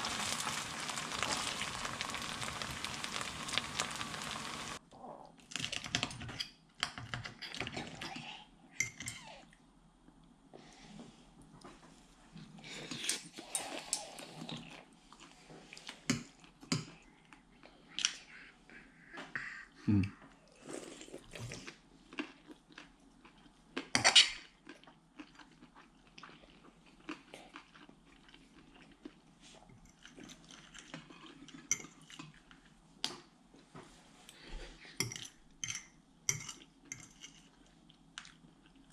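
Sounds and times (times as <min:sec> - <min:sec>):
chewing: 0:20.1 - 0:32.8.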